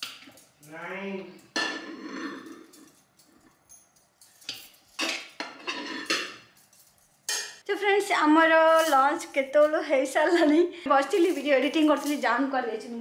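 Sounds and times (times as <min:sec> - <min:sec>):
spoon scraping metal pot: 0:01.5 - 0:02.9, 0:05.0 - 0:06.5.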